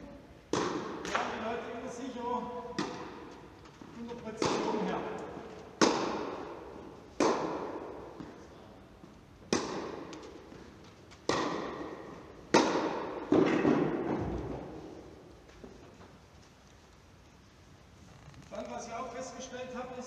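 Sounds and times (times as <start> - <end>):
tennis ball hit by racket: 0.5 - 1.4, 2.7 - 3.3, 4.4 - 4.9, 5.7 - 8.4, 9.4 - 10.6, 11.2 - 14.7.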